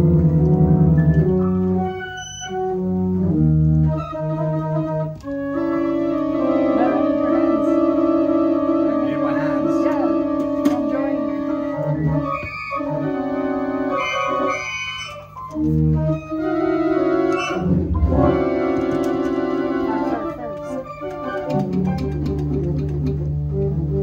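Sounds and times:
electronic organ chords: 0.0s - 24.0s.

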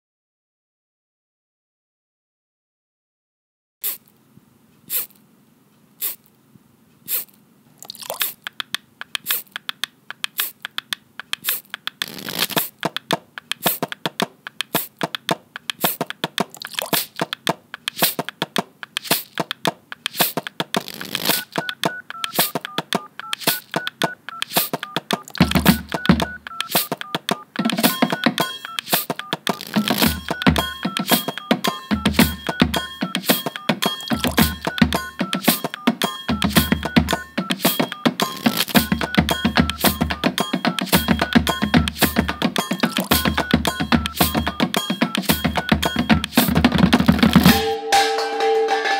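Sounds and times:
melody of high beeps: 21.2s - 48.0s.

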